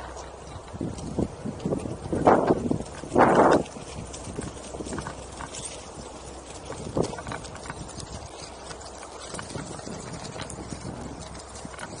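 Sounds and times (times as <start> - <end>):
board rolling over dirt trail: 0.0 - 12.0.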